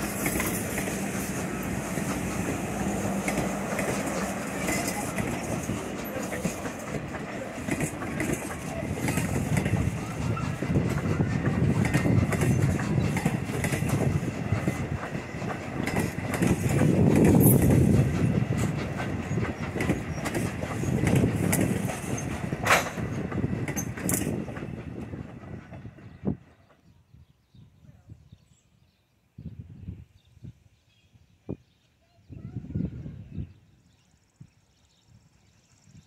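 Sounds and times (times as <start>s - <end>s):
wheels clicking over rail joints: 0.0s - 25.8s
train wheels rumbling on rails: 0.0s - 27.1s.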